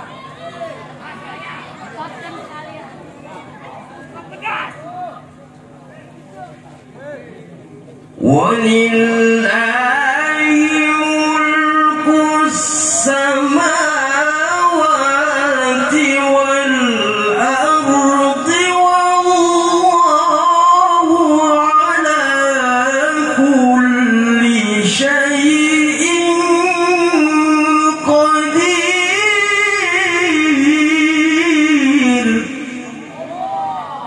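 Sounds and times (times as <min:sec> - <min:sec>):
man chanting in a high voice: 0:08.2 - 0:34.0.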